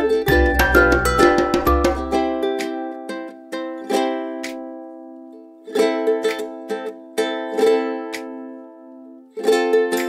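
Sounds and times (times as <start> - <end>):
low bass: 0.0 - 2.2
plucked string tune: 0.0 - 10.0.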